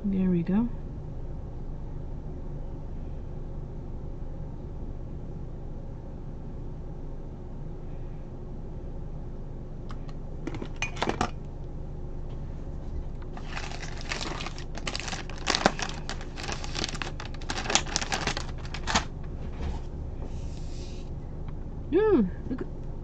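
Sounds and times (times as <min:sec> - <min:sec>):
plastic pack crinkling: 0:13.2 - 0:19.2.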